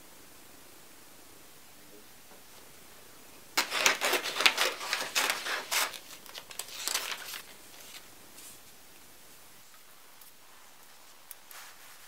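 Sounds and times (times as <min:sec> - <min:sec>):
packaging crinkling and rustling: 0:03.6 - 0:08.7.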